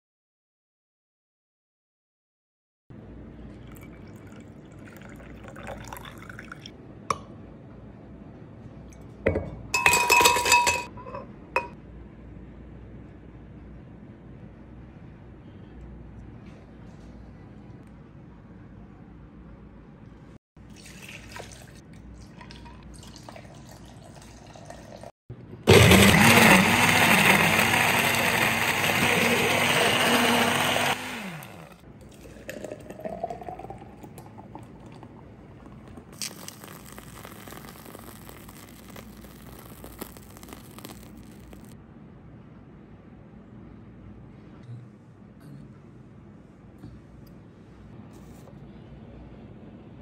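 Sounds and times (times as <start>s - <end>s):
kitchen handling sounds: 9.3s - 11.8s
blender crushing ice: 25.7s - 31.8s, 36.2s - 41.8s.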